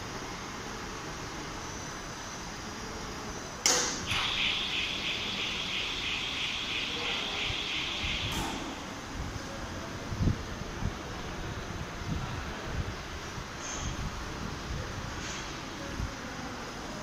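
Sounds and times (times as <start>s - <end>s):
crane warning buzzer pulsing: 4.1s - 8.5s.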